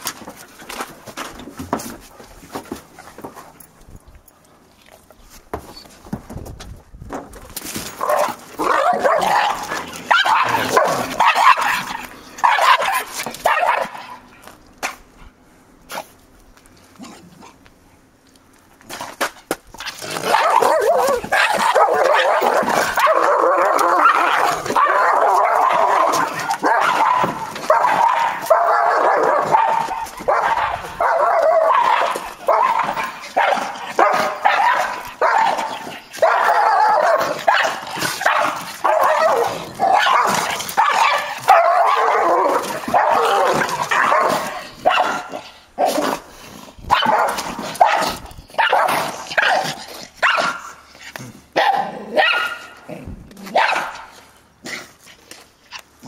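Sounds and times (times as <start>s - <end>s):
dogs barking yipping and whining: 7.7s - 16.2s, 19.8s - 56.0s.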